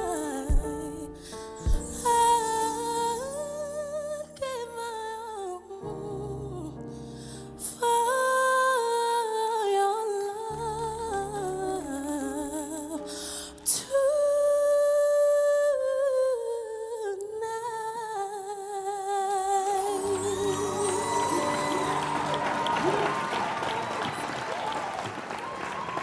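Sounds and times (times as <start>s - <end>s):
woman singing with vibrato: 0.0s - 6.8s, 7.6s - 23.1s
soft piano accompaniment: 0.0s - 17.4s, 19.3s - 26.0s.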